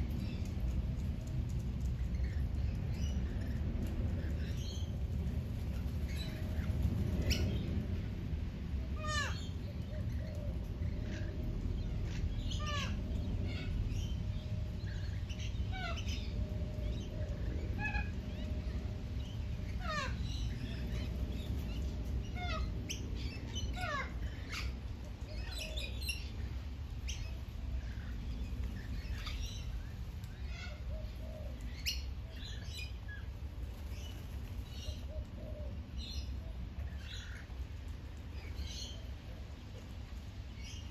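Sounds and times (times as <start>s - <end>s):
low steady rumble: 0.0s - 40.9s
birds calling: 8.7s - 39.8s.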